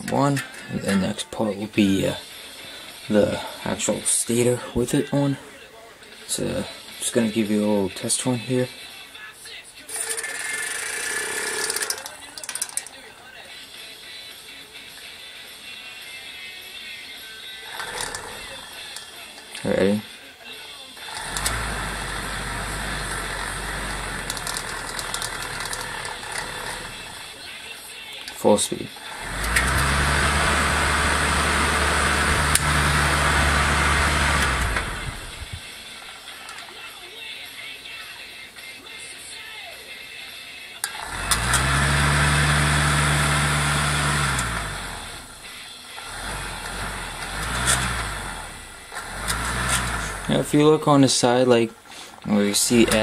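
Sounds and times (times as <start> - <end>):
siren rotor whirring: 10.0 - 12.0, 17.7 - 18.6, 21.0 - 27.4, 29.0 - 35.9, 40.9 - 50.6
low motor hum: 21.1 - 27.3, 29.1 - 35.7, 41.0 - 50.5
light rattling: 21.2 - 27.3
whirring rush of air: 29.1 - 35.7.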